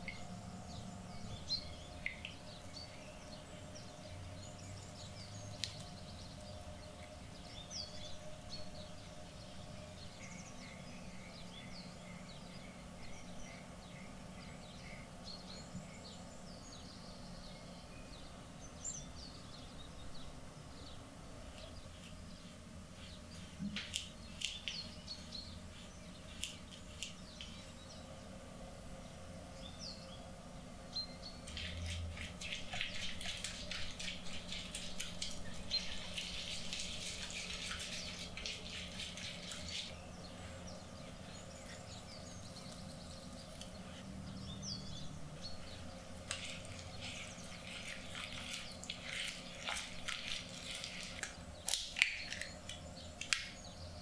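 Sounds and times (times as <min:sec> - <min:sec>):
egg cracking: 0:46.2 - 0:53.6
pouring into a bowl: 0:46.3 - 0:52.6.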